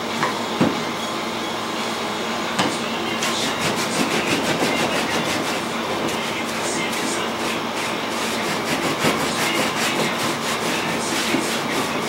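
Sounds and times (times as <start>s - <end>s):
hand rubbing antler: 3.5s - 12.0s.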